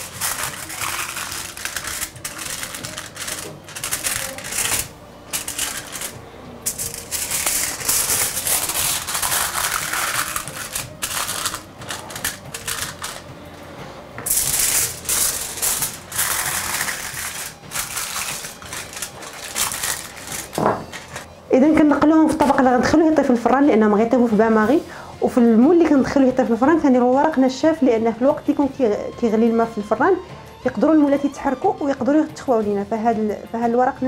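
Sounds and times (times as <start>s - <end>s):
aluminium foil crinkling: 0.0s - 13.2s, 14.3s - 21.3s.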